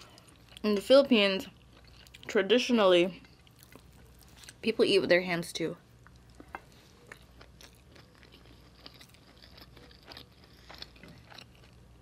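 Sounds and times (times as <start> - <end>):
chewing with mouth clicks: 1.6 - 2.3, 3.2 - 4.6, 6.0 - 12.0.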